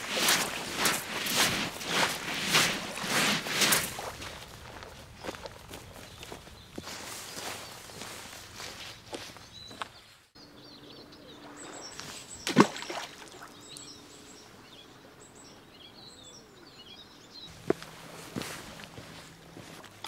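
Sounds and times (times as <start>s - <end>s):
small birds chirping: 0.0s - 20.0s
splash into shallow water: 11.5s - 13.5s.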